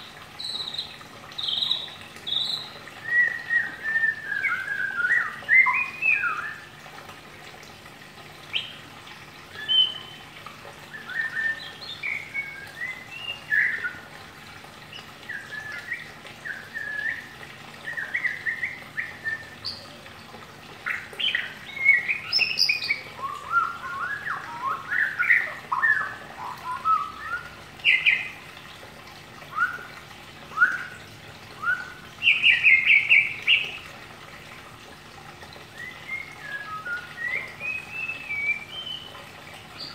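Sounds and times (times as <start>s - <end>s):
bird chirping and whistling: 0.4s - 6.7s, 9.6s - 10.2s, 11.0s - 14.0s, 15.3s - 19.8s, 21.2s - 28.3s, 29.5s - 29.9s, 30.5s - 30.9s, 31.6s - 33.8s, 35.8s - 39.1s.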